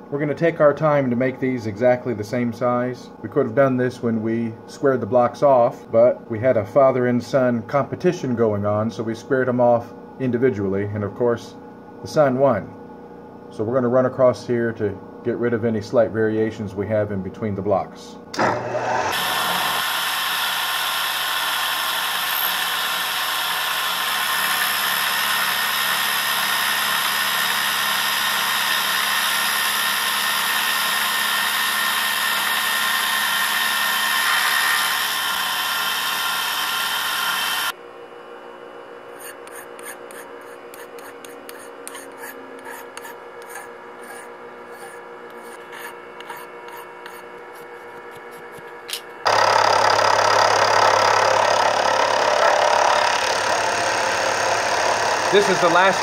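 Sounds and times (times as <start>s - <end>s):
mill fly cutter cutting aluminum: 18.4s - 37.8s, 48.2s - 56.0s
machine running with light ticking: 48.9s - 56.0s.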